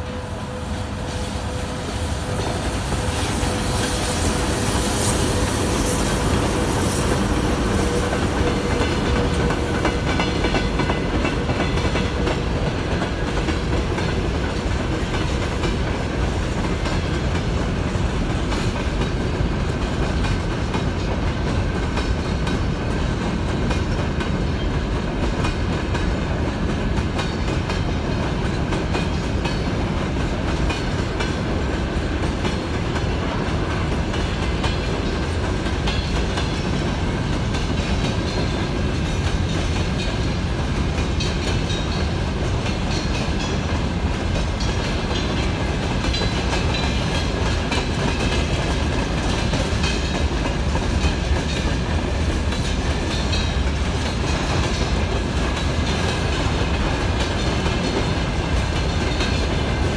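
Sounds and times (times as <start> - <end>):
train wheels rumbling on rail: 0.0 - 59.9
wheels clicking over rail joints: 2.3 - 59.9.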